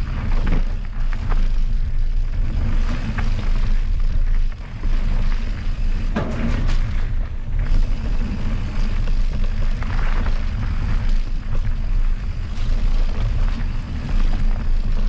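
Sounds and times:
bike rattling over bumps: 0:00.0 - 0:15.0
bike tyre noise: 0:00.0 - 0:15.0.

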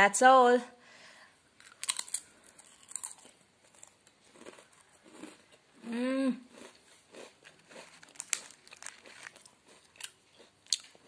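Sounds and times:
crunching and chewing cracker: 0:01.6 - 0:05.8, 0:06.5 - 0:11.0
person humming mm: 0:05.8 - 0:06.5.

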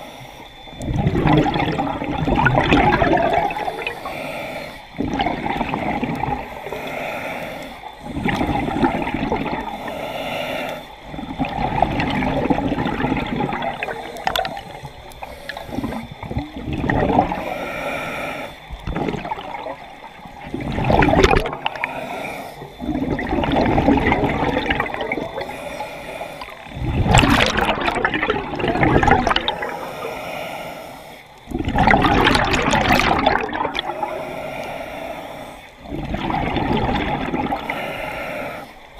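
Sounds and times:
regulator inhale hiss: 0:00.0 - 0:02.2, 0:03.5 - 0:20.5, 0:21.5 - 0:23.6, 0:24.4 - 0:27.1, 0:29.5 - 0:31.6, 0:33.6 - 0:36.1, 0:37.2 - 0:38.9
gurgling exhaled bubbles: 0:00.6 - 0:04.2, 0:04.9 - 0:06.9, 0:07.9 - 0:09.9, 0:11.0 - 0:17.5, 0:18.6 - 0:25.6, 0:26.4 - 0:30.0, 0:31.4 - 0:34.3, 0:35.8 - 0:38.6.

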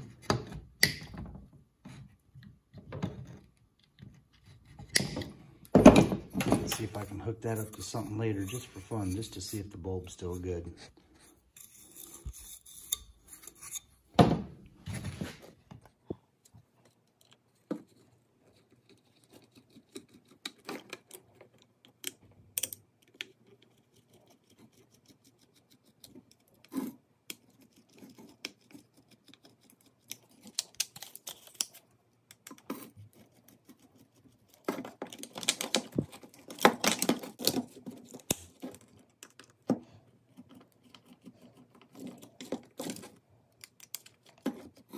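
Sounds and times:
plastic and metal parts handled on workbench: 0:00.0 - 0:18.1, 0:34.6 - 0:40.8, 0:41.7 - 0:44.9
parts clattering: 0:04.9 - 0:09.6.

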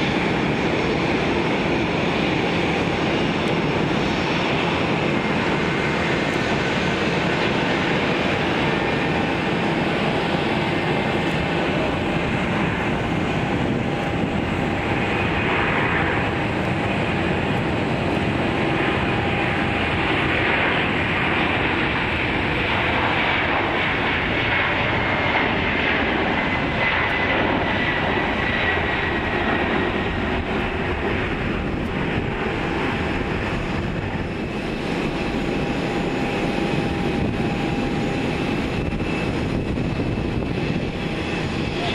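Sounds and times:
jet engine roar: 0:00.0 - 0:41.9.

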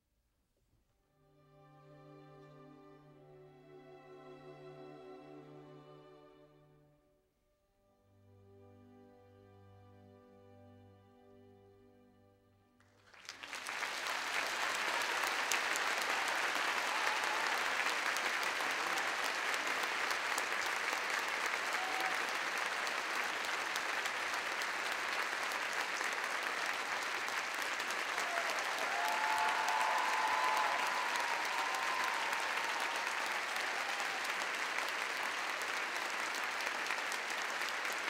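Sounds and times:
audience applause: 0:12.8 - 0:38.0.

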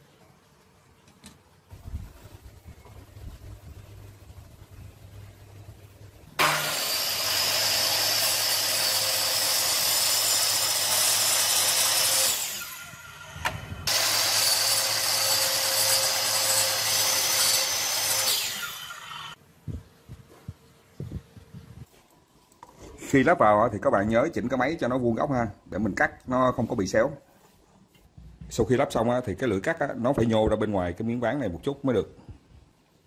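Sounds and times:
miter saw cutting board: 0:06.4 - 0:19.4.

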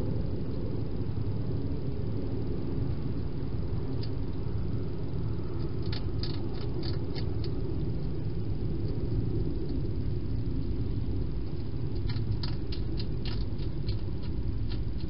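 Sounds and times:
low background rumble: 0:00.0 - 0:15.0
hedgehog crunching dry food: 0:05.6 - 0:07.6, 0:11.6 - 0:15.0.

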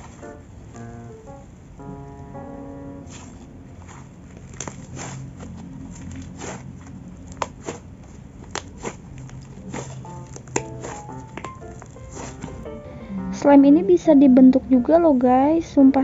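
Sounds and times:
slime crackling and popping: 0:03.1 - 0:12.6.

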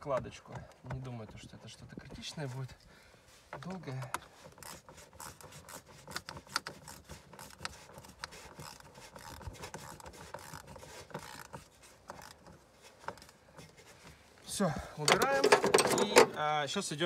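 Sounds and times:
plastic cover scraping and rubbing: 0:03.4 - 0:14.4
small clicks and knocks: 0:03.5 - 0:14.2.

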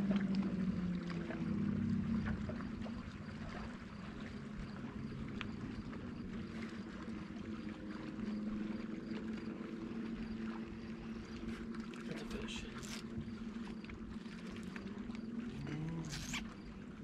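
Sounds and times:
electric boat motor humming: 0:00.0 - 0:17.0
faint ticks: 0:05.3 - 0:05.9
water washing: 0:10.6 - 0:17.0.

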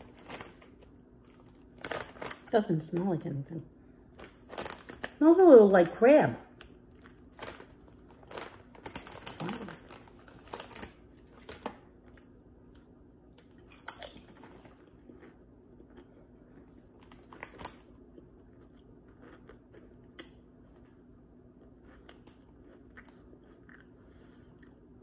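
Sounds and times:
foil bag crackling: 0:00.0 - 0:03.0, 0:04.2 - 0:11.8
person chewing crunchy chips: 0:13.4 - 0:21.0, 0:21.6 - 0:25.0.

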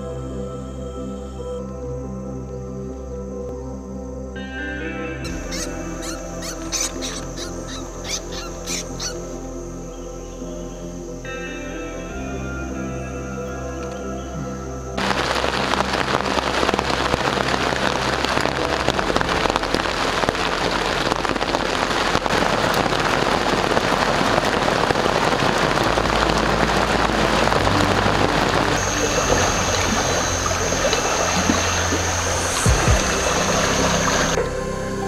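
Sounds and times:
low background music: 0:00.0 - 0:35.0
rain on foliage: 0:15.0 - 0:35.0.

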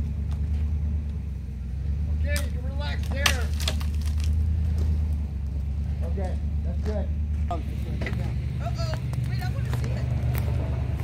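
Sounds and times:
truck engine running: 0:00.0 - 0:11.0
sharp crack of wood: 0:02.3 - 0:05.2.

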